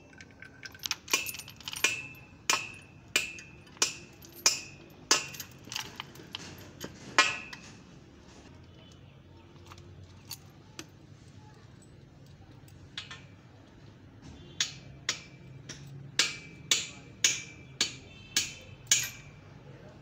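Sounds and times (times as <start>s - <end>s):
metal chain clinking: 0.0s - 7.6s, 18.8s - 19.4s.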